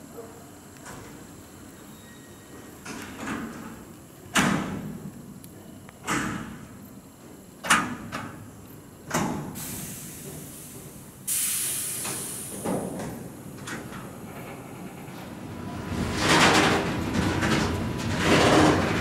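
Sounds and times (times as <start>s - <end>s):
sharp hiss: 9.5s - 12.9s
wheels rumbling on rail: 12.2s - 19.0s
freight wagons clanking: 15.9s - 19.0s.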